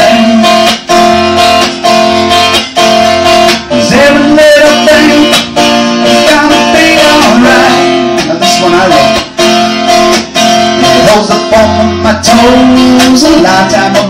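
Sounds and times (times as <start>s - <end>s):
man singing: 0.0s - 1.2s, 3.6s - 9.4s, 10.6s - 14.0s
acoustic guitar strumming: 0.0s - 14.0s.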